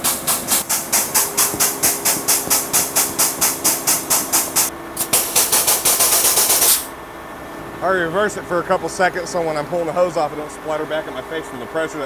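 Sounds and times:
pump hissing chuff: 0.0s - 6.9s.

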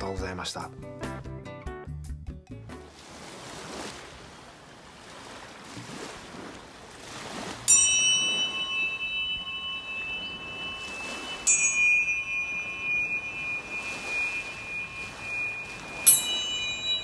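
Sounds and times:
ocean surf: 2.9s - 17.0s
tuning fork ringing: 7.7s - 17.0s.

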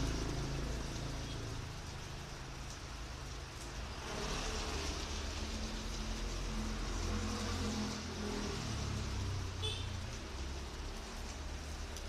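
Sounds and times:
rain falling: 0.0s - 12.0s.

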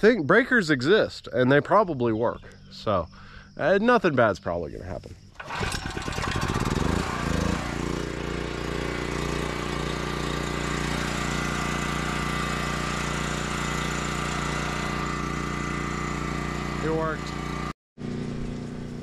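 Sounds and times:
generator engine starting and running: 5.3s - 19.0s.

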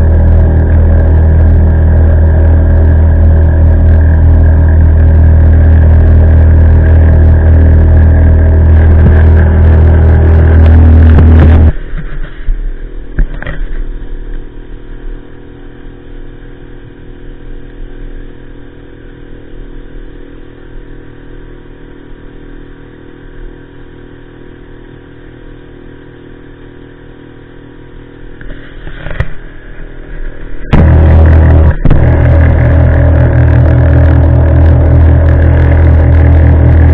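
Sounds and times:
motorboat engine running: 0.0s - 36.9s
water and hull noise: 28.4s - 36.9s.

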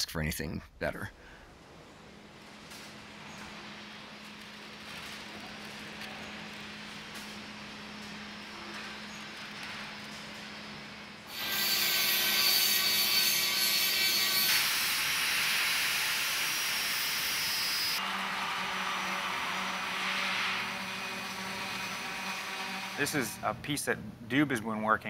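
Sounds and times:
angle grinder grinding steel: 11.3s - 23.4s
power tool running: 11.3s - 23.4s.

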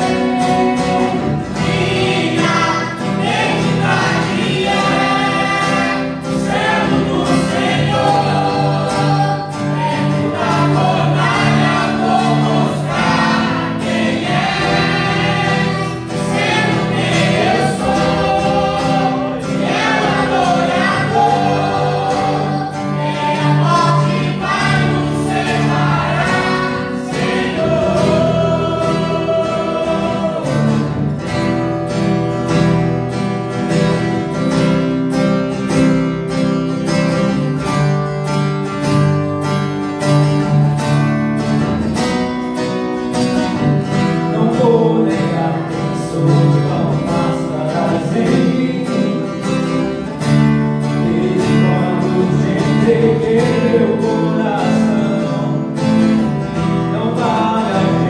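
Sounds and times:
singers on microphones: 0.0s - 31.0s, 44.2s - 50.1s, 50.8s - 58.0s
amplified band with guitar and drums: 0.0s - 58.0s.

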